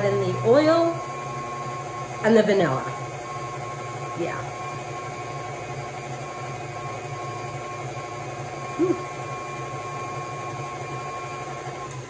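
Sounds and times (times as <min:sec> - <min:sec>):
stand mixer motor humming: 0:00.0 - 0:12.0
brief rising and falling pitched sound: 0:08.7 - 0:09.2.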